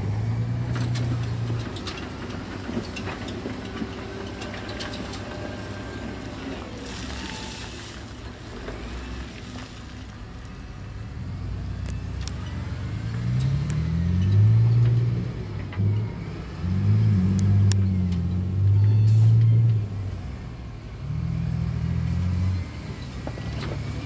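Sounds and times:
heavy diesel machine engine revving: 11.0 - 24.0.

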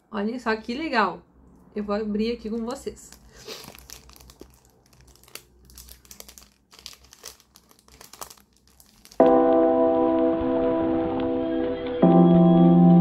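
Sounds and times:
shrink wrap crinkling: 2.4 - 9.4
music with ringing bell tones: 9.2 - 13.0.

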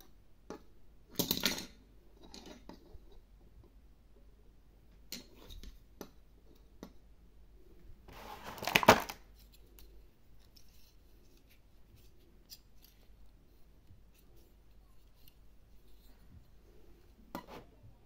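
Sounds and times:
plastic clattering and rattling: 8.4 - 9.2.

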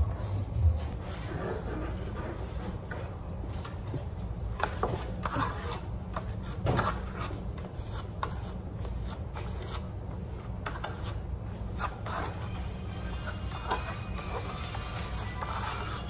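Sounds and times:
trowel scraping plaster: 4.6 - 16.0.

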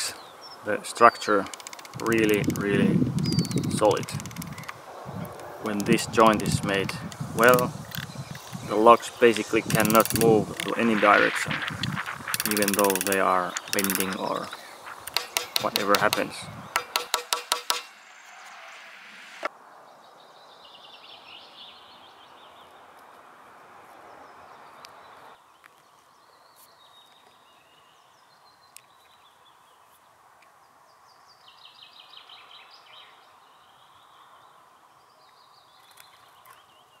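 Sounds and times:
small birds chirping and trilling: 0.0 - 17.0, 24.1 - 37.0
faint outdoor hiss: 0.0 - 37.0
sharp knock: 15.0 - 18.0.

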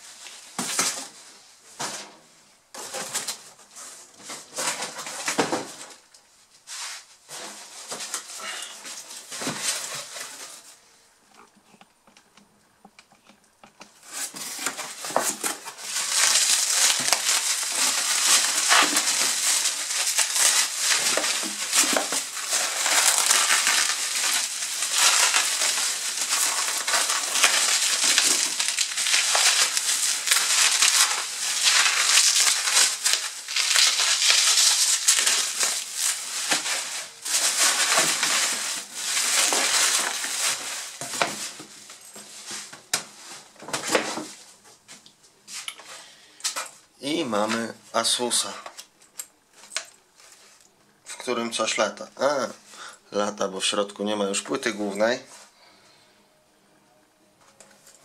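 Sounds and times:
bubble wrap crinkling: 2.8 - 11.5, 13.9 - 45.6, 46.4 - 51.7.

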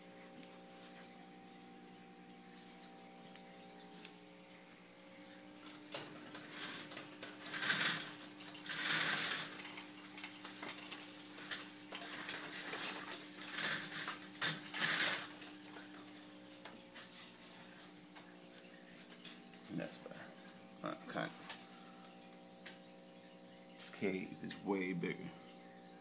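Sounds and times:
aquarium equipment humming: 0.0 - 26.0
scattered clicks and knocks: 5.7 - 15.5.

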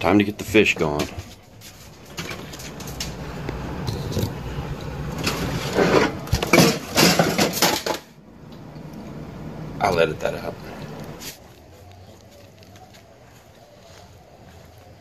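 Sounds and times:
low steady hum: 0.0 - 15.0
handling sounds: 0.6 - 8.1.

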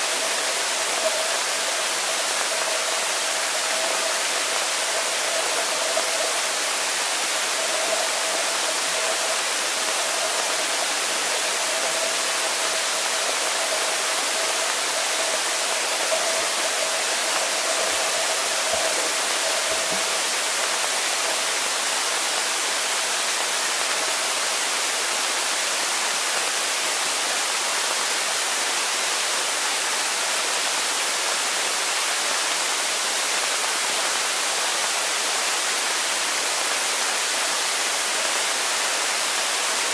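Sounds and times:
underwater water hiss: 0.0 - 30.2.

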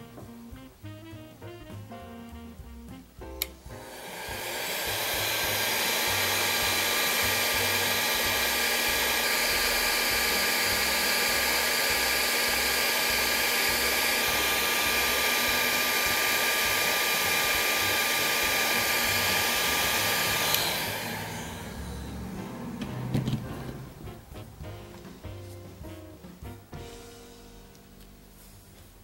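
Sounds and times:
heat gun blowing hot air: 3.4 - 24.1
heat gun fan whine: 3.4 - 24.1
heat gun switch click: 20.4 - 20.7.

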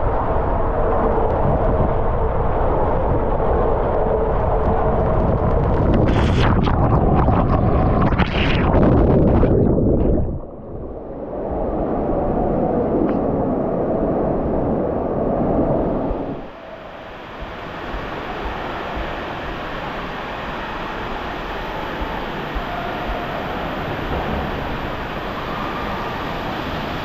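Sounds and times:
water rushing down a slide: 2.3 - 10.6.

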